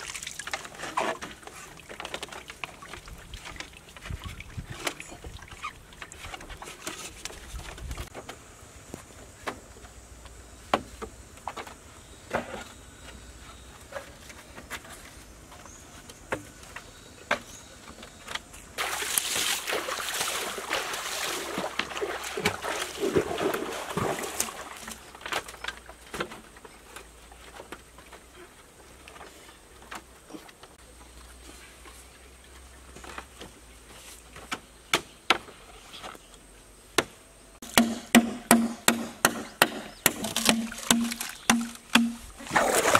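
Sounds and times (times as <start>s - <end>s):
water splashing: 0.0s - 6.8s, 18.8s - 25.2s, 40.2s - 42.9s
bamboo poles knocking: 37.0s - 42.4s.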